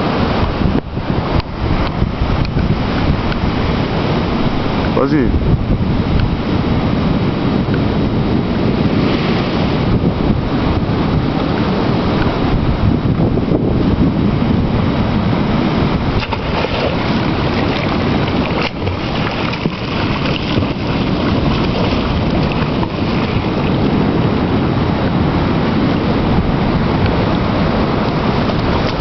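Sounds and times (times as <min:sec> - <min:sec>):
wind buffeting microphone: 0:00.0 - 0:29.0
swimmers splashing: 0:16.2 - 0:23.9.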